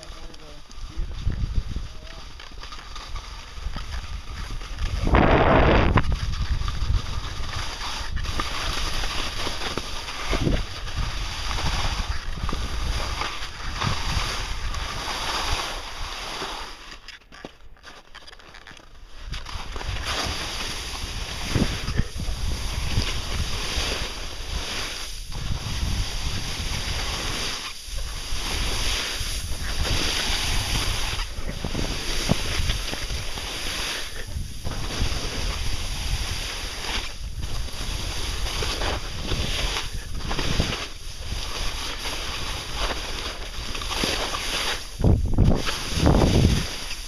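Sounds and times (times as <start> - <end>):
skis sliding on snow: 0.0 - 47.0
wind buffeting rumble: 0.8 - 2.2, 3.2 - 9.0, 21.0 - 24.3, 25.3 - 27.3, 44.9 - 46.8
wind rushing over microphone: 0.8 - 2.4, 3.1 - 15.6, 19.2 - 47.0.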